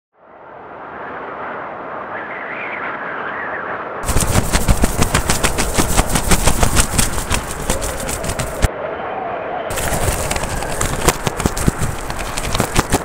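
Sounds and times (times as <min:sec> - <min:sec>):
rapid sharp cracks: 0:04.0 - 0:08.7, 0:09.7 - 0:13.0
steady rushing noise: 0:04.0 - 0:08.8, 0:09.7 - 0:13.0.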